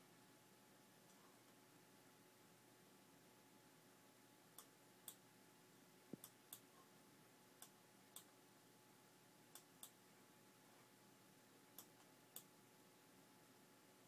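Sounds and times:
faint steady hum: 0.0s - 14.0s
light sharp ticks of heater: 4.6s - 5.2s, 7.6s - 8.3s, 9.5s - 10.0s.

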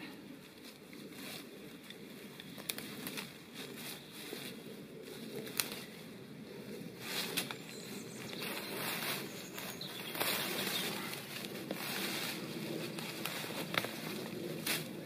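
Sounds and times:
dry leaves rustling and crackling: 0.4s - 6.1s, 6.8s - 15.0s
twigs snapping: 2.4s - 3.3s, 5.4s - 5.8s, 13.0s - 14.9s.

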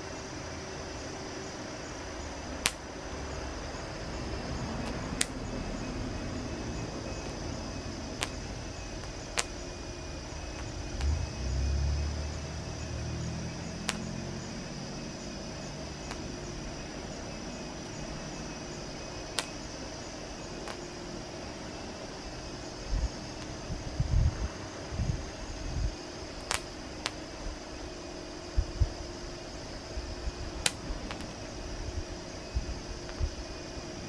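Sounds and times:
steady hiss: 0.0s - 34.0s
popcorn popping: 2.6s - 2.9s
low rumble: 4.0s - 19.2s.

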